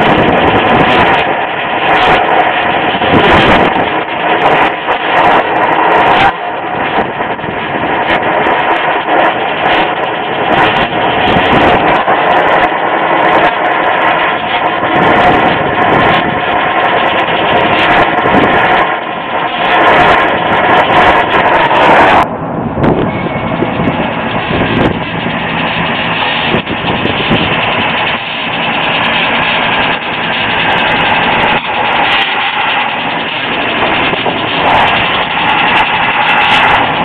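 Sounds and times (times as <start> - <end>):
loud steady machine noise: 0.0 - 37.0
torch flame burning: 0.0 - 37.0.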